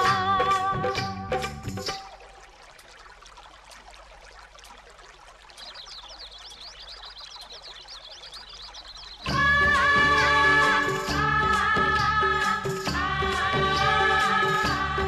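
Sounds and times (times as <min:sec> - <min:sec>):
background music: 0:00.0 - 0:02.2, 0:09.3 - 0:15.0.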